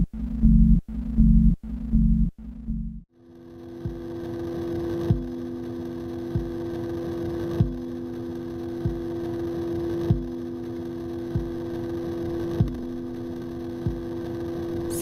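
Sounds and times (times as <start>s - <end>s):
electronic drone hum: 0.0s - 15.0s.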